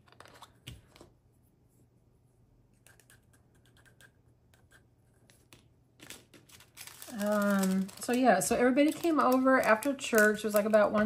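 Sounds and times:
plastic containers scratching and ticking: 6.4 - 11.0.

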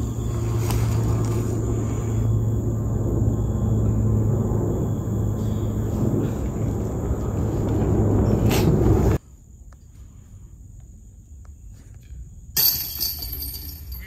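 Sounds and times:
wind rumbling on microphone: 0.0 - 9.2
disc hitting basket chains: 12.5 - 14.0.

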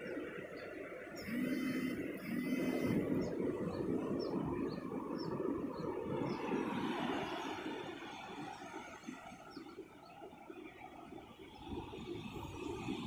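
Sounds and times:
motor hum: 1.2 - 3.4.

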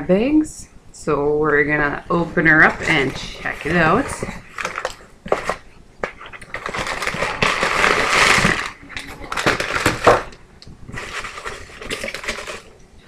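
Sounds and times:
wrapping rustling and crinkling: 2.4 - 12.9
cardboard flaps scraping: 2.6 - 10.3.

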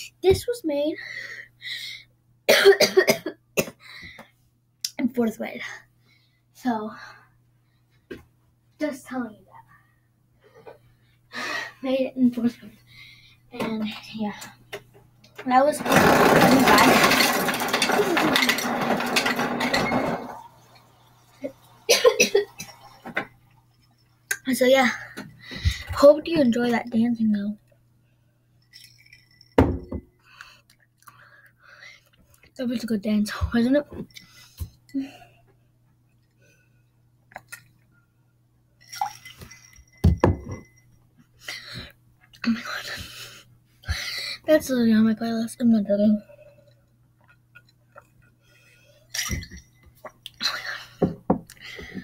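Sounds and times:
ice dispenser grinding: 15.6 - 20.9
breathy sounds: 50.3 - 52.0.

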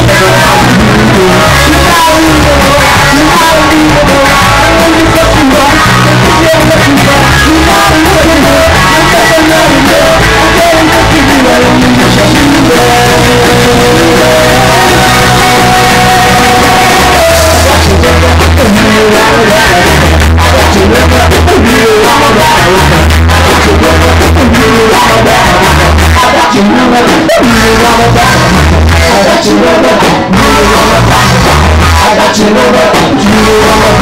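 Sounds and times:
guitar: 0.0 - 34.0
live rock band playing: 0.0 - 34.0
man singing into microphone: 0.0 - 34.0.

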